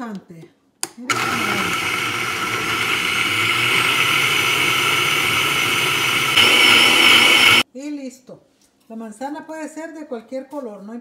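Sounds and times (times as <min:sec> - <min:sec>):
blender motor running: 0:01.1 - 0:07.6.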